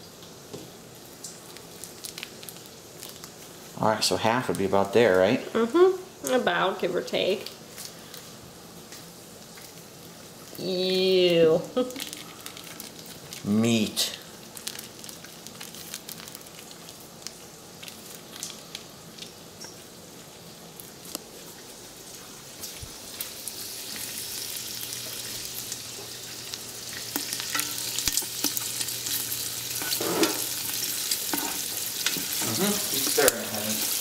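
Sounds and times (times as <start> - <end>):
pork sizzling in a pot: 0.0 - 34.0.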